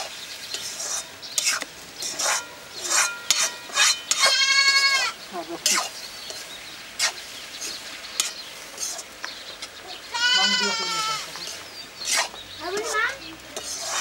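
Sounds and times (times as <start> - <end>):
goat bleating: 4.2 - 5.2, 10.1 - 11.4.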